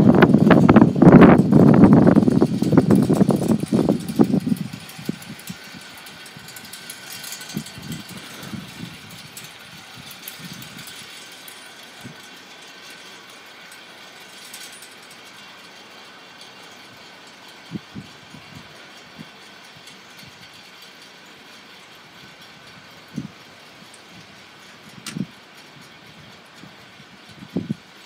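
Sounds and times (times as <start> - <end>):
wind gusts rumbling on microphone: 0.0 - 11.2, 17.6 - 20.6, 22.1 - 28.0.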